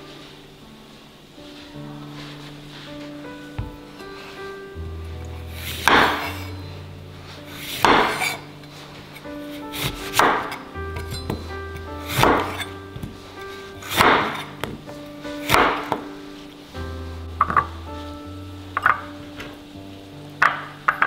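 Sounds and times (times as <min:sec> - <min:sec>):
background music: 0:00.0 - 0:21.0
knife cutting on wooden board: 0:12.0 - 0:13.1.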